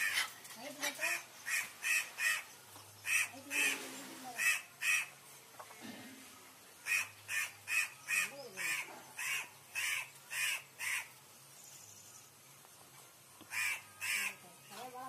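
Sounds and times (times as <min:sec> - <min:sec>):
crow cawing: 0:06.8 - 0:11.1, 0:13.5 - 0:14.4.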